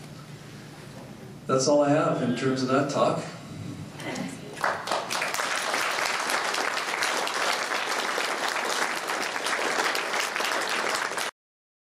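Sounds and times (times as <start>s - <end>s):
audience applauding: 4.6s - 11.4s.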